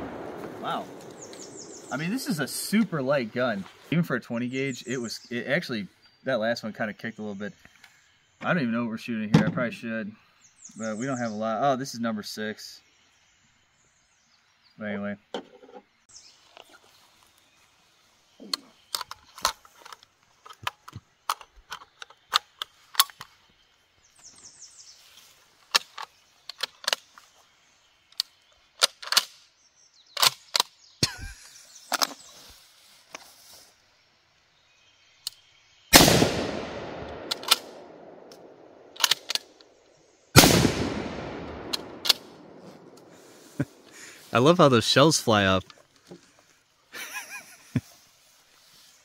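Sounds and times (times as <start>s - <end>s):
shotgun shots with echo: 0.0s - 2.0s, 35.9s - 38.6s, 40.4s - 43.0s
shotgun bolt clicking: 36.0s - 39.7s, 40.4s - 43.1s.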